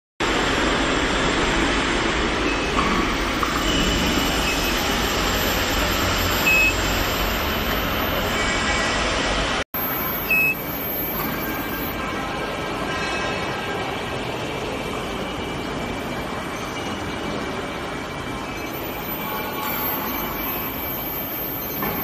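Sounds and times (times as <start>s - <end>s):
steady workshop machinery noise: 0.2s - 22.0s
short high electronic beeps: 3.7s - 8.3s, 9.8s - 12.0s, 18.7s - 22.0s.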